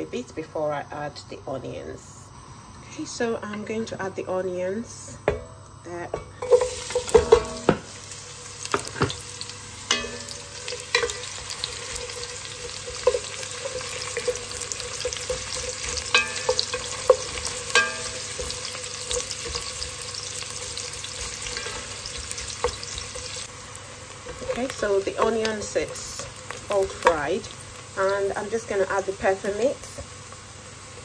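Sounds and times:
onions sizzling in oil: 5.9 - 31.0.

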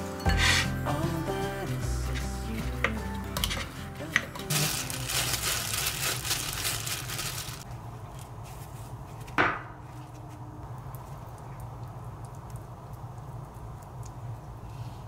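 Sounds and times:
rustling: 4.4 - 10.4.

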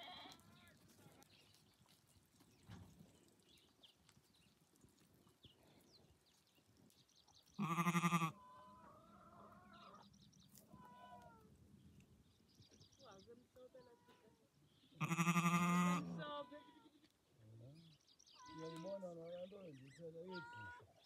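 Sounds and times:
sheep bleating: 0.0 - 0.7, 7.6 - 10.0, 15.0 - 16.9.

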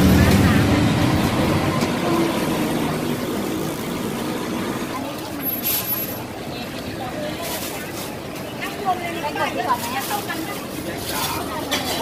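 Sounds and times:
people talking: 0.0 - 12.0
street traffic rumbling: 0.0 - 12.0.

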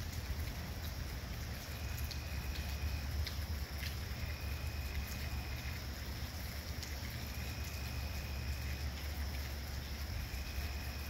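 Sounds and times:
light rain: 0.0 - 11.0.

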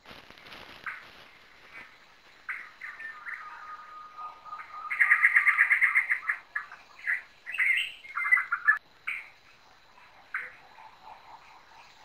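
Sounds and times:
birds calling: 0.8 - 12.0.

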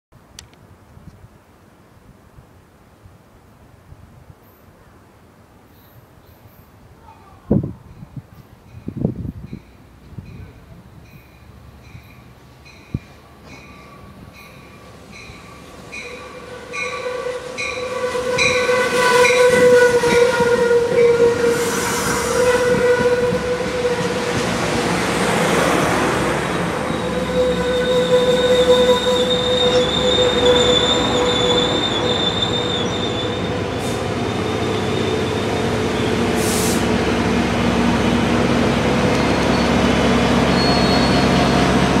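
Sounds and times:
train bell ringing: 7.9 - 19.5
train wheels rumbling on rails: 7.9 - 42.0
train horn: 16.0 - 24.8, 26.6 - 36.8
high brake squeal: 26.8 - 36.8, 39.2 - 39.8, 40.4 - 41.8.

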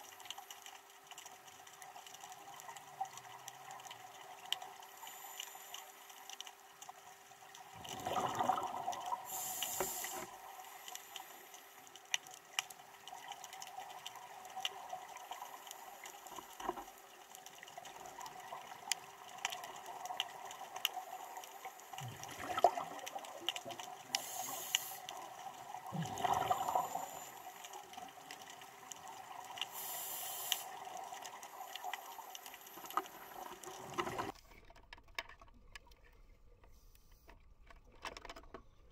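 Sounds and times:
faint crackling in water: 0.0 - 38.9
bubbling exhalations underwater: 7.8 - 9.2, 22.0 - 23.0, 25.8 - 27.2
hissing regulator inhalations: 9.2 - 11.7, 24.1 - 25.2, 29.6 - 30.8.

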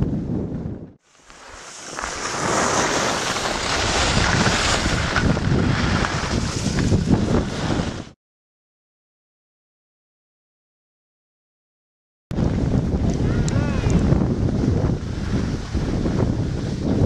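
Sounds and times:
wind buffeting microphone: 0.0 - 1.0, 2.0 - 8.2, 12.3 - 17.0
skis sliding on snow: 1.0 - 8.2, 13.8 - 17.0.

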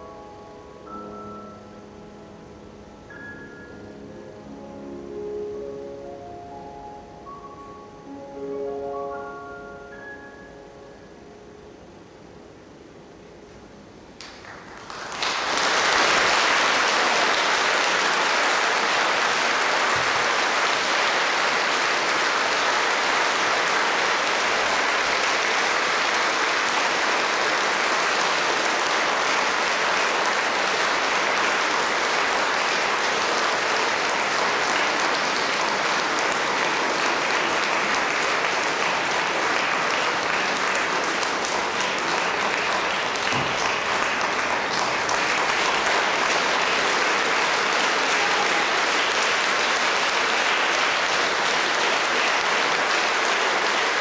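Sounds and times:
audience applauding: 14.2 - 54.0.

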